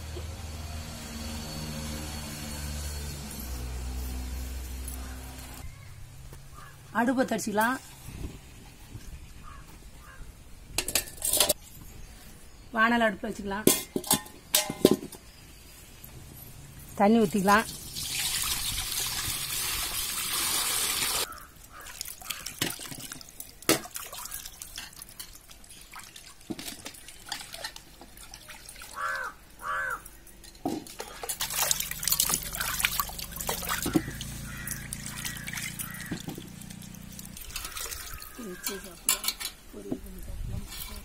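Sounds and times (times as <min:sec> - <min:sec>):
water sloshing while washing: 0:17.5 - 0:29.6, 0:30.8 - 0:39.3
water poured into metal pan: 0:17.6 - 0:29.0, 0:31.0 - 0:39.3.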